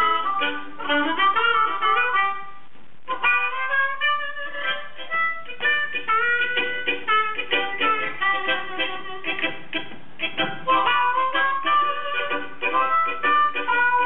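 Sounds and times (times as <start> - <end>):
amplified harmonicas playing blues: 0.0 - 14.0.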